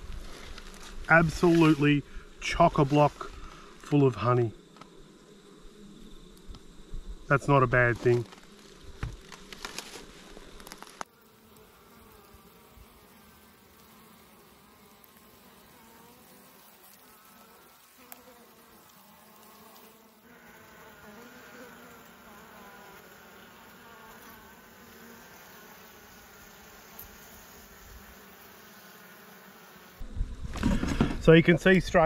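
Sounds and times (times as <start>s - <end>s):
bees buzzing: 0.0s - 32.0s.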